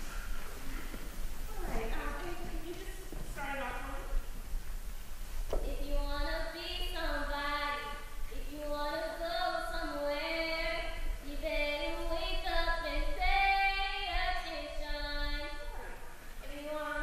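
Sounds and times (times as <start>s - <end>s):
girl singing: 5.6s - 17.0s.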